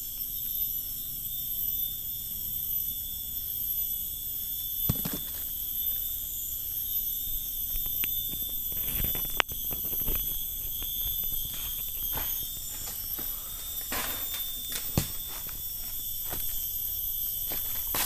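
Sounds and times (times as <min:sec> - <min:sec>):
insects droning: 0:00.0 - 0:18.0
clicks and rustles: 0:08.0 - 0:16.7.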